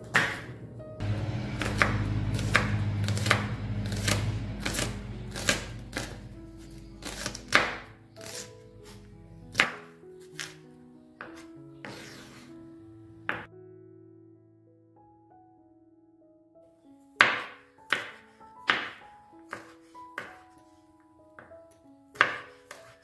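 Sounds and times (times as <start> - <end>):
knife slicing onions on board: 7.0 - 9.8, 22.2 - 23.0.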